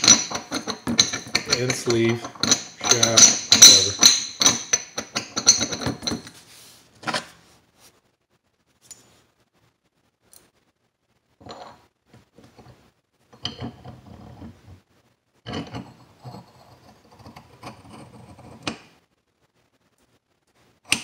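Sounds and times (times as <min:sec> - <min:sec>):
metal parts scraping and clinking: 0:00.0 - 0:06.3.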